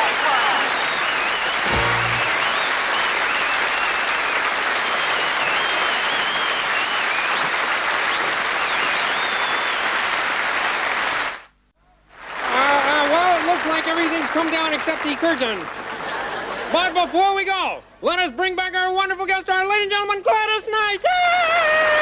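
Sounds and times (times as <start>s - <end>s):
audience applauding: 0.0s - 11.4s, 12.2s - 16.9s.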